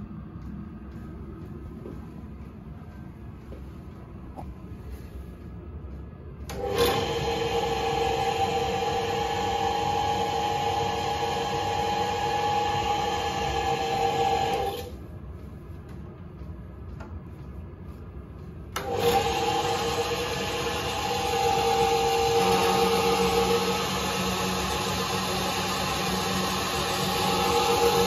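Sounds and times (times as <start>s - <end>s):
lathe motor whining: 6.5s - 15.0s, 18.8s - 28.0s.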